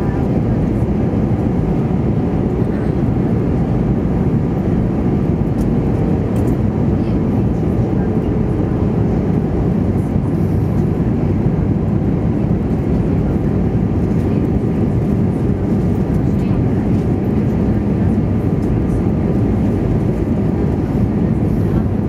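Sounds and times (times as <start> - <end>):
jet engines and airflow rush: 0.0 - 22.0.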